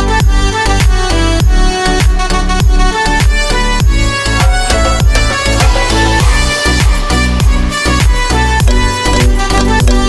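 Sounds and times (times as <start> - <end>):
deep kick drum beat: 0.2 - 10.0
held melody notes: 2.9 - 10.0.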